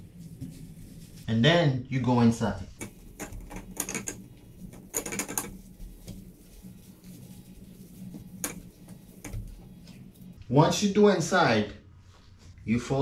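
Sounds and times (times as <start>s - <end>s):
cloth wiping sink: 0.0s - 1.7s, 2.4s - 10.4s
steady low hum: 0.0s - 12.7s.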